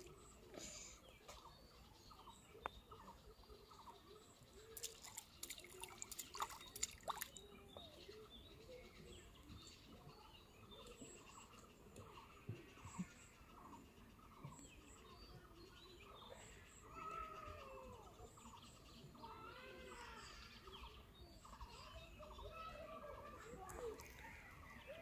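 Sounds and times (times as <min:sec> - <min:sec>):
faint birds calling: 0:00.0 - 0:25.0
small splashes: 0:04.6 - 0:07.6.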